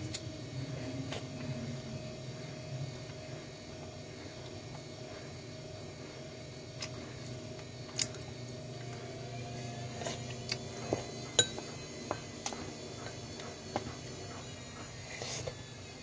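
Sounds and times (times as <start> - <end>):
chopsticks tapping ceramic bowl: 11.4 - 12.3.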